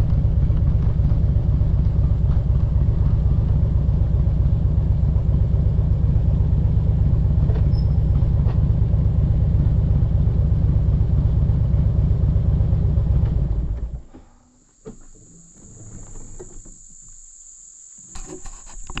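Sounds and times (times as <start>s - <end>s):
wind and road rumble: 0.0s - 14.2s
insects buzzing: 13.9s - 19.0s.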